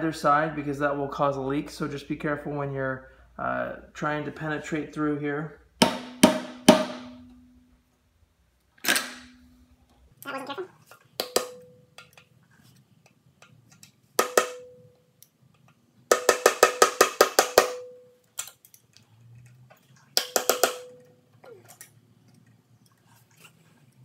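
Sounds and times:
hammer tapping metal pick: 0:05.8 - 0:07.5, 0:14.2 - 0:14.9, 0:20.2 - 0:21.1.

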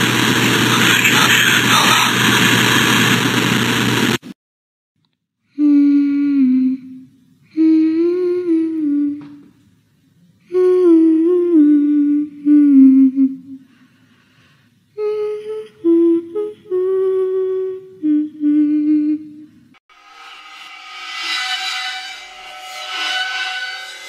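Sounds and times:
person humming a lullaby-like tune: 0:05.5 - 0:09.5, 0:10.4 - 0:13.7, 0:15.0 - 0:19.6.

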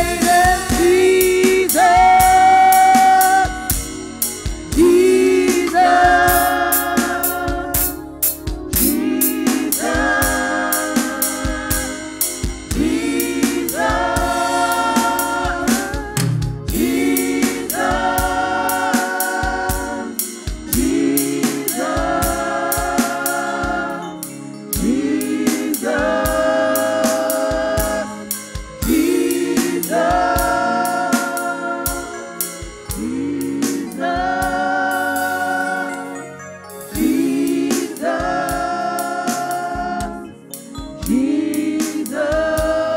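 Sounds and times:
women singing in harmony: 0:00.0 - 0:03.9, 0:04.7 - 0:08.0, 0:08.7 - 0:24.2, 0:24.8 - 0:36.3, 0:36.9 - 0:40.4, 0:41.0 - 0:42.9
drums: 0:00.0 - 0:24.0, 0:24.7 - 0:35.6, 0:37.0 - 0:40.2, 0:40.8 - 0:42.9.

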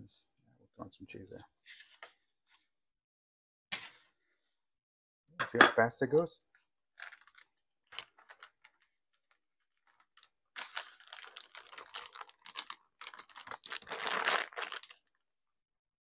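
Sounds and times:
plastic packaging crinkling: 0:07.0 - 0:15.2.

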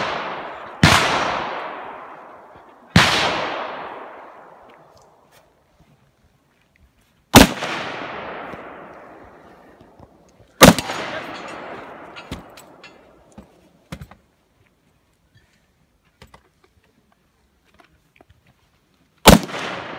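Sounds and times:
gunshots with rolling echo: 0:00.0 - 0:05.2, 0:07.3 - 0:09.6, 0:10.6 - 0:13.3, 0:19.2 - 0:19.9.

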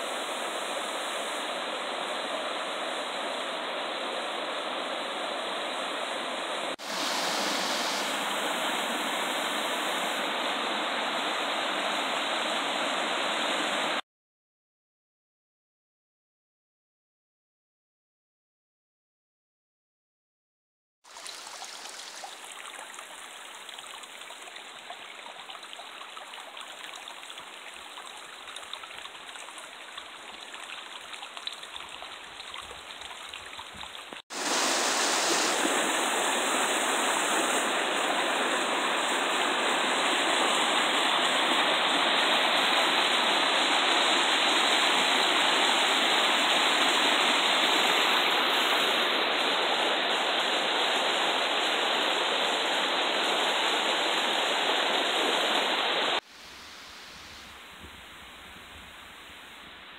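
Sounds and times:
stream flowing over stones: 0:00.0 - 0:14.0, 0:21.1 - 0:57.6.

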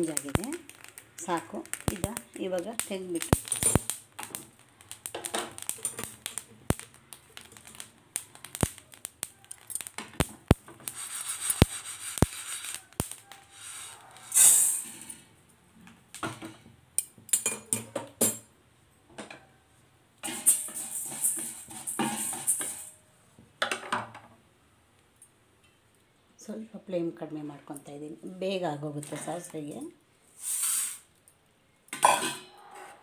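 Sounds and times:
seeds rattling into steel pan: 0:00.0 - 0:15.2, 0:20.2 - 0:23.0, 0:30.4 - 0:31.0
wooden spatula scraping seeds in pan: 0:00.0 - 0:15.2, 0:20.2 - 0:22.9, 0:30.4 - 0:31.0.

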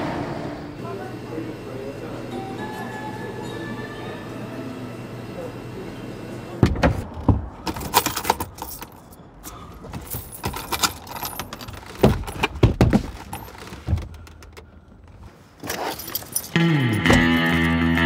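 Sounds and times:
coins clinking and jingling: 0:07.7 - 0:09.2, 0:15.7 - 0:17.7.

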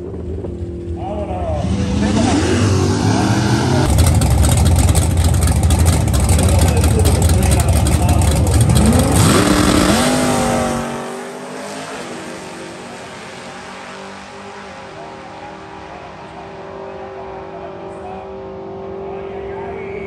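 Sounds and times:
steady engine hum: 0:00.0 - 0:13.3
race car accelerating: 0:00.0 - 0:20.0.

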